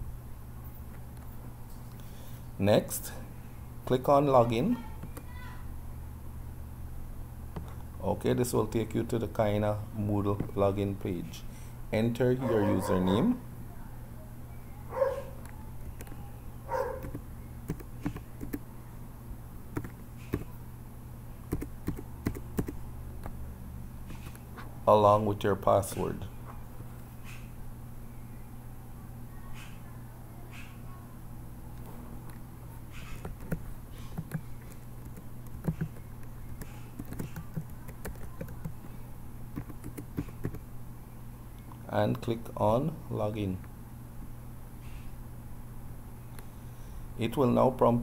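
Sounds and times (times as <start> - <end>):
low steady hum: 0.0 - 48.0
keyboard keys clicking: 17.0 - 18.6, 19.7 - 20.5, 21.5 - 23.4, 33.1 - 40.6.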